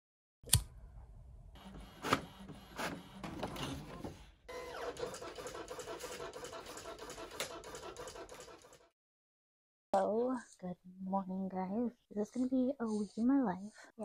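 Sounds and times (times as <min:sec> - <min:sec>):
office machine humming and ticking: 0:01.6 - 0:08.7.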